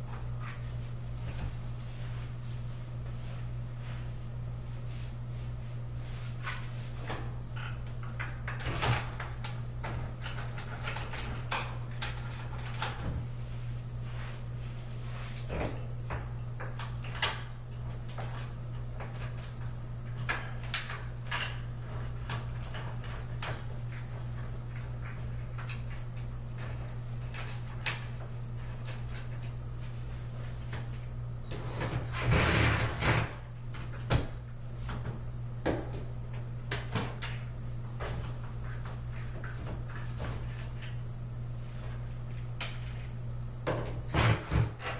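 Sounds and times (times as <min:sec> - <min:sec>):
steady low hum: 0:00.0 - 0:44.9
bed frame parts clicking and scraping: 0:06.1 - 0:31.0, 0:31.6 - 0:35.0, 0:41.6 - 0:44.9.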